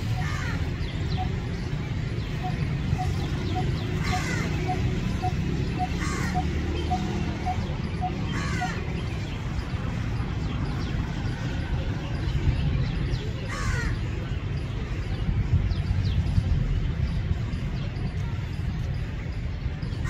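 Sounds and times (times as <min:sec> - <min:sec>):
bird metronomic call: 0:00.0 - 0:10.9.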